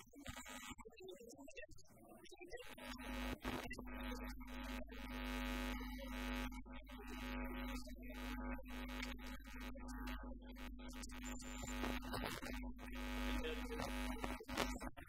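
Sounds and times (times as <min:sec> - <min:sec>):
electrical hum: 0:02.5 - 0:15.0.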